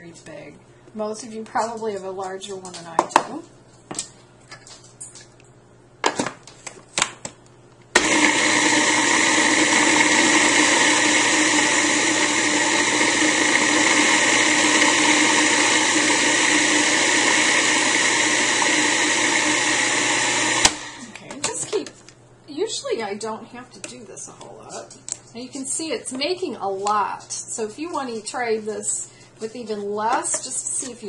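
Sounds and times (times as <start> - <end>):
food processor motor running: 8.0 - 21.2.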